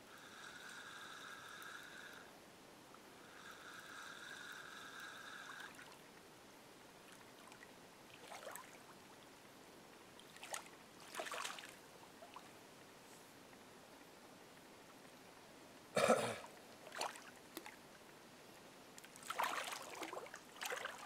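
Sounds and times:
water splashing and sloshing: 7.0s - 9.3s, 10.1s - 12.6s, 16.5s - 18.0s, 19.0s - 21.0s.

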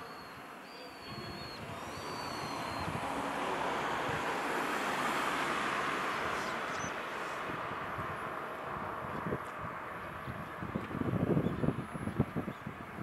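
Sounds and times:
distant vehicle rumble: 0.0s - 13.0s.

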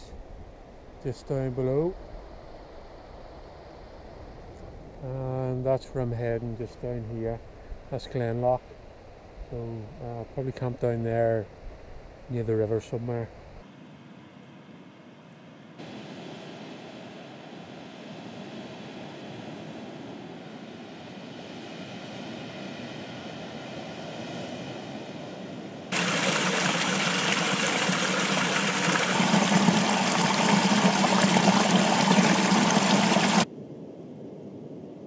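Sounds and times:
waterfall splashing into pool: 25.9s - 33.5s.

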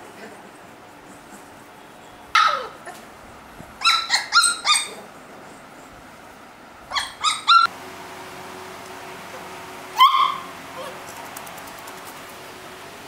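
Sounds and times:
puppies yipping: 2.3s - 3.0s, 3.8s - 5.7s, 6.9s - 7.7s, 10.0s - 11.1s
puppy yelp: 2.3s - 3.0s, 3.8s - 5.2s, 6.9s - 7.7s, 10.0s - 11.0s.

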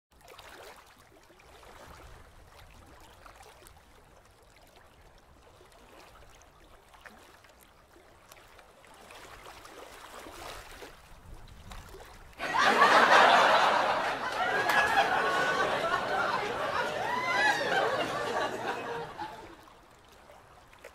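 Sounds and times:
people laughing and chattering: 12.4s - 19.7s.

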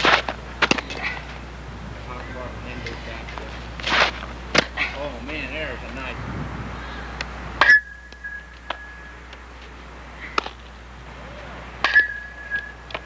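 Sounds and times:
metal bat pinging ball: 7.6s - 8.9s, 11.8s - 13.0s.

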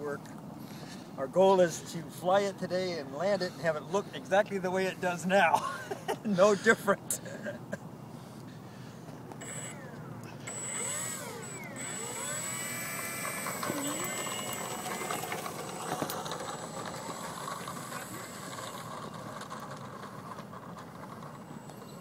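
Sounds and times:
electric motor whine: 9.4s - 22.0s.

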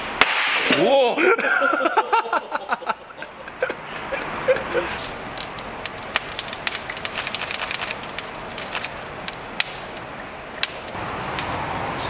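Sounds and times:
steady grill hiss: 0.0s - 12.0s
oysters crackling on a grill: 3.2s - 12.0s.

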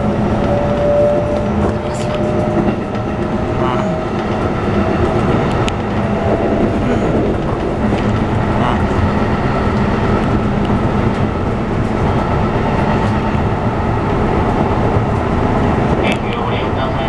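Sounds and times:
train wheels on rails: 0.0s - 17.0s.

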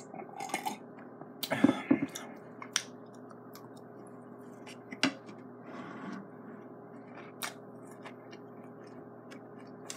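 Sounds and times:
faint steady hum: 0.0s - 9.9s
person chewing: 1.4s - 5.5s, 6.6s - 9.9s.

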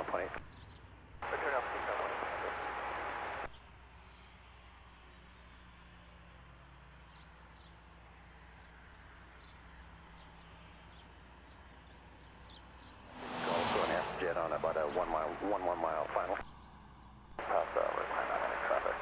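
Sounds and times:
radio hiss: 0.0s - 0.4s, 1.2s - 3.5s, 13.1s - 16.4s, 17.4s - 19.0s
faint low hum: 13.0s - 19.0s.

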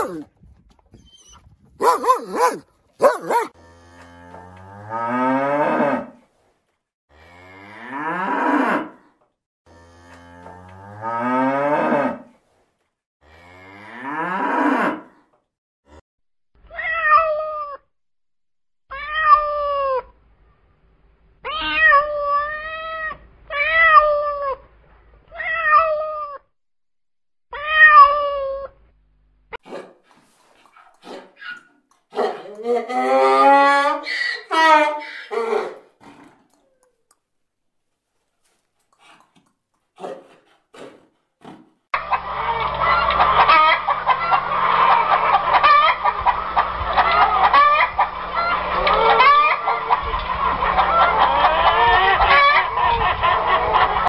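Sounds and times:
dog barking: 0.0s - 0.2s, 1.8s - 3.6s, 29.6s - 30.0s, 31.1s - 32.5s, 40.0s - 40.4s
cat meowing: 27.6s - 28.7s.

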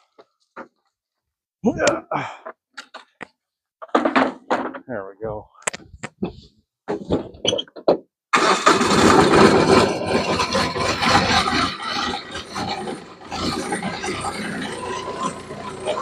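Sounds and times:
tractor engine starting and running: 8.3s - 16.0s.

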